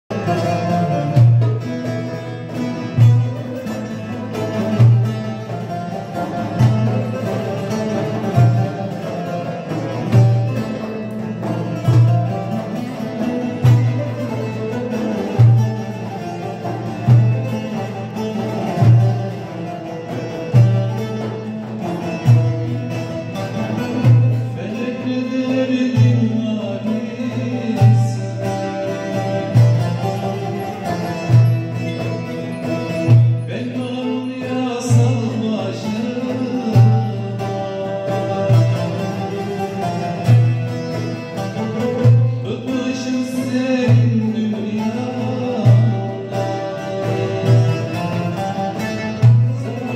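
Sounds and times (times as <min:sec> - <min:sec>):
frame drum: 0:00.1 - 0:49.9
long-necked lutes playing melody: 0:00.1 - 0:49.9
metal hand drum: 0:00.1 - 0:49.9
person singing: 0:24.5 - 0:29.6, 0:42.4 - 0:48.2.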